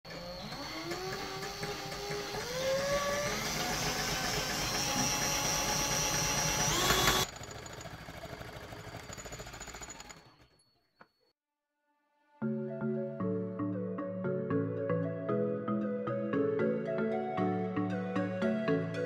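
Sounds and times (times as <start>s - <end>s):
cordless drill motor whine: 0.1s - 7.4s
scroll saw blade cutting wood: 0.1s - 7.4s.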